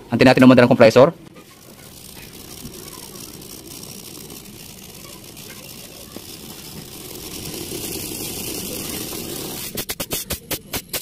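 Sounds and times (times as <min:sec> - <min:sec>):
refrigerator compressor hum: 0:01.2 - 0:09.8
fast even pulsing: 0:01.2 - 0:11.0.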